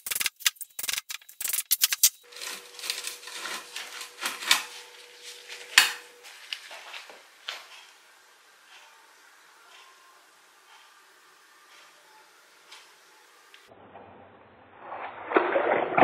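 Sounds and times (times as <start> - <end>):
metallic clicks and scrapes: 0.0 - 6.6
grating metal scrape: 0.0 - 6.9.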